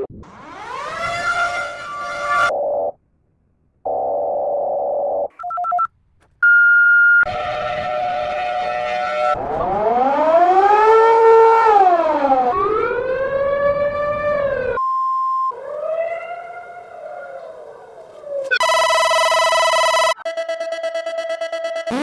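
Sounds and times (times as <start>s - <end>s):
siren rising and falling: 0.0s - 2.9s, 7.3s - 14.8s, 18.3s - 22.0s
alarm tones: 18.5s - 22.0s
pulsing beep: 18.6s - 22.0s.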